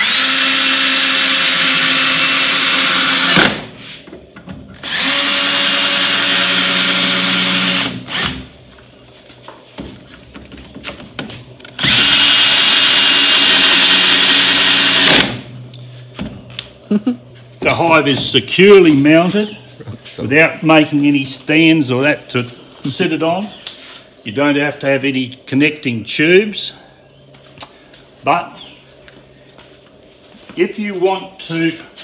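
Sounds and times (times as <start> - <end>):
cordless drill driving screws: 0.0 - 3.6, 4.8 - 8.4, 11.8 - 15.4.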